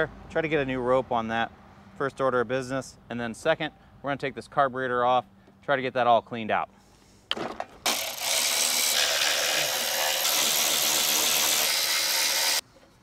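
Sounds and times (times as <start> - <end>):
power drill running: 7.9 - 12.6.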